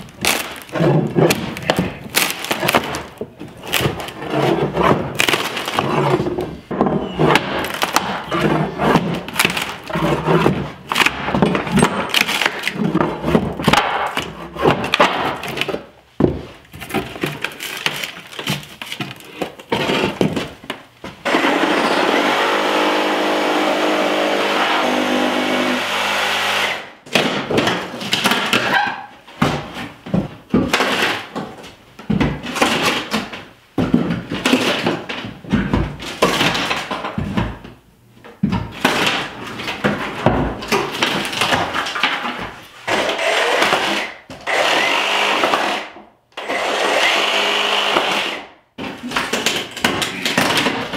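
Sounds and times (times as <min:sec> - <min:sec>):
wood cracking and splintering: 0:00.0 - 0:15.8.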